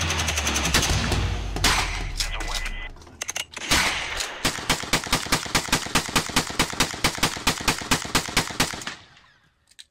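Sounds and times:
rapid gunfire: 0:00.0 - 0:02.2, 0:03.6 - 0:09.1.

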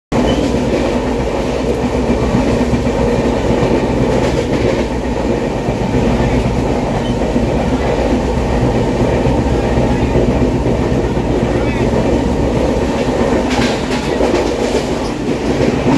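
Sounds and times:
train clatter: 0:00.1 - 0:15.9
train wheels rumbling on rails: 0:00.1 - 0:15.9.

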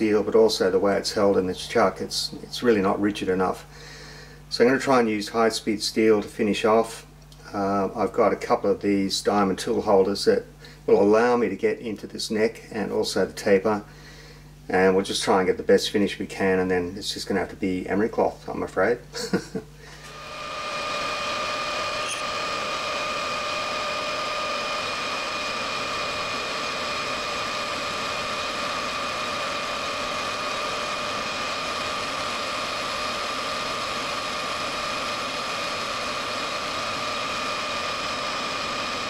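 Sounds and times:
metal lathe whining: 0:20.0 - 0:39.0
cutting tool on steel: 0:20.1 - 0:32.8.

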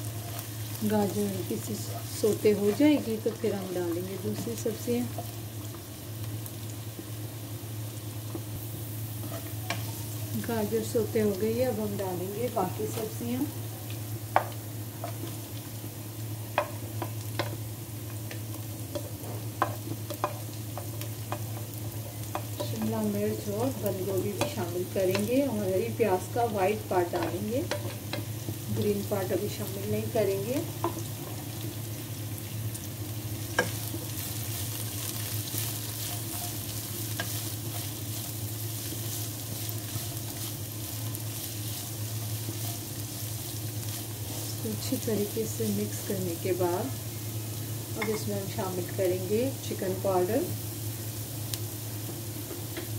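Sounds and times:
vegetables sizzling in oil: 0:00.0 - 0:52.9
spatula stirring in wok: 0:16.5 - 0:23.5, 0:33.3 - 0:45.1.

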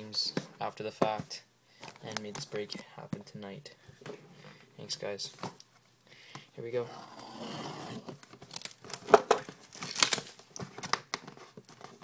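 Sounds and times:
plastic wrap crinkling: 0:08.2 - 0:12.0
blade slitting plastic wrap: 0:09.7 - 0:10.4.

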